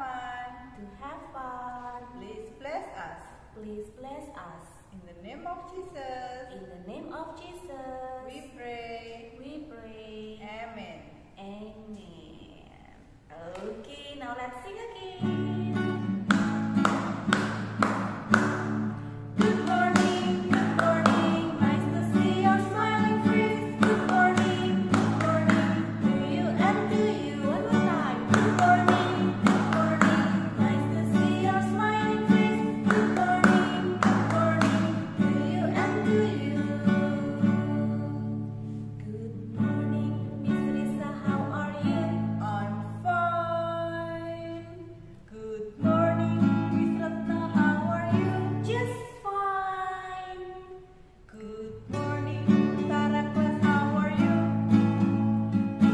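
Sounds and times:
women singing: 0:14.8 - 0:50.7, 0:51.3 - 0:55.9
strummed acoustic guitar: 0:15.2 - 0:42.4, 0:51.9 - 0:55.9.

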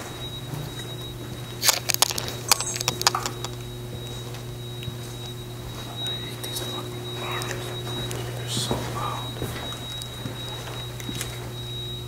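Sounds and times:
steady low hum: 0:00.0 - 0:12.0
thin high whine: 0:00.0 - 0:12.0
sharp clicks and clatters: 0:01.6 - 0:03.6.

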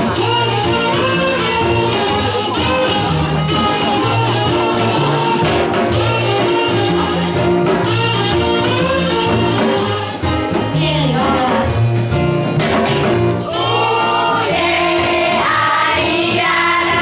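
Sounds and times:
acoustic guitar: 0:00.0 - 0:17.0
light percussion: 0:00.0 - 0:17.0
upright double bass: 0:00.0 - 0:17.0
woman singing into microphone: 0:10.7 - 0:11.8.

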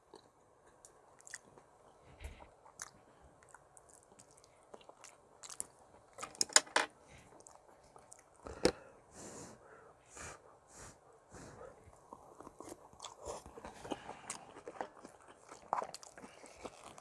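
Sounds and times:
breathy puffs: 0:08.4 - 0:12.1.

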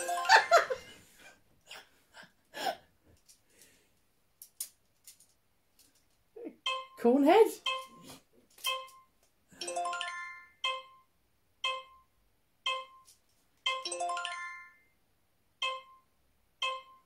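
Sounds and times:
multi-note chimes: 0:13.7 - 0:14.9.

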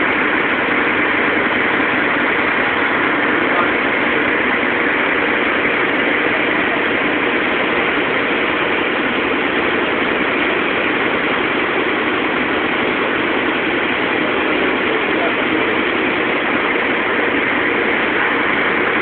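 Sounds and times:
large fire burning: 0:00.0 - 0:19.0.

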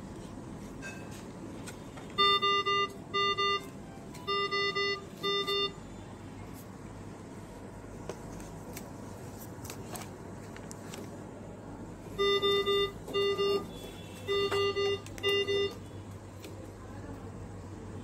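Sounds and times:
ventilator alarm beeps: 0:02.1 - 0:06.0, 0:12.1 - 0:16.0.

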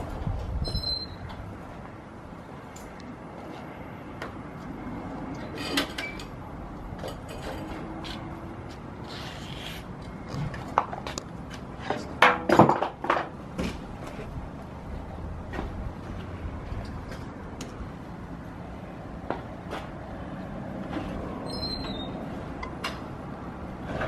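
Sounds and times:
bicycle clicks and metal rattles: 0:05.3 - 0:06.4, 0:07.0 - 0:08.2.

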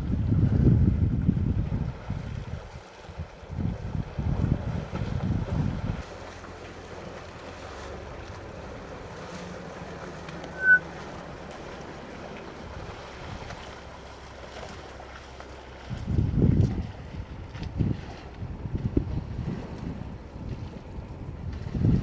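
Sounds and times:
wind noise on microphone: 0:00.0 - 0:06.1, 0:15.8 - 0:22.0
elephants wading in water: 0:00.0 - 0:22.0
high whistled note: 0:10.4 - 0:10.8.

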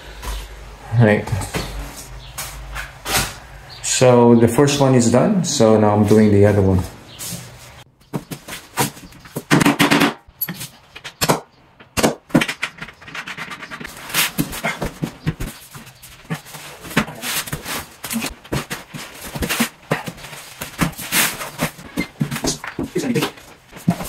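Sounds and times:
wooden panels knocking and scraping: 0:08.0 - 0:24.0.

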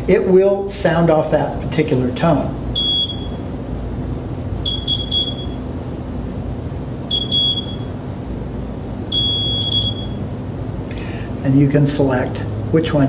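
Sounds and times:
high electronic beeps: 0:02.8 - 0:03.4, 0:04.7 - 0:05.6, 0:07.1 - 0:07.9, 0:09.1 - 0:10.2.

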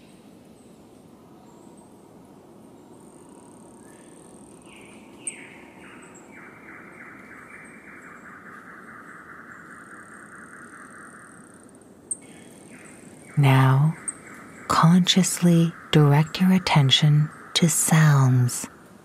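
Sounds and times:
low background noise: 0:00.0 - 0:19.0
high insect whine: 0:01.5 - 0:19.0.

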